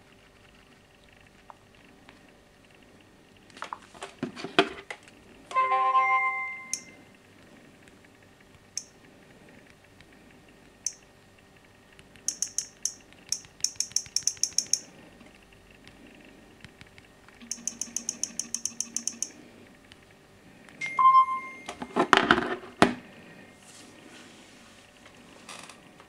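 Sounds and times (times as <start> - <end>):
short chime: 5.5 - 7.0, 20.8 - 21.8.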